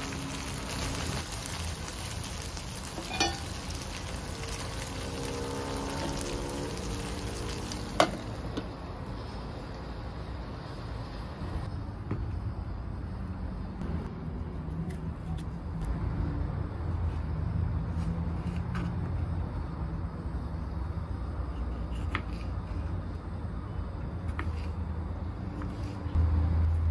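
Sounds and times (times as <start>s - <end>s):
meatballs sizzling in oil: 0.0s - 9.9s.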